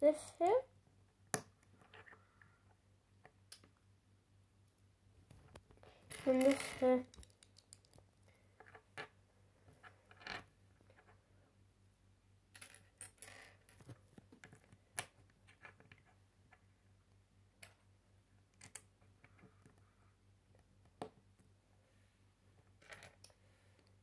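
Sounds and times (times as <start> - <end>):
plastic bricks clicking: 6.4 - 8.0.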